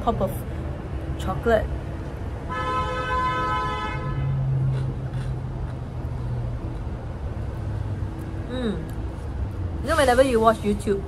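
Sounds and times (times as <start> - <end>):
engine hum: 0.0 - 11.0
street traffic rumble: 0.0 - 11.0
vehicle horn toot: 2.5 - 4.4.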